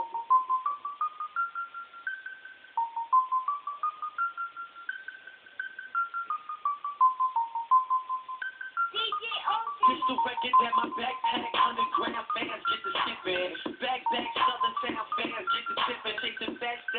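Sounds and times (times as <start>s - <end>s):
electronic beeping tune: 0.0s - 16.9s.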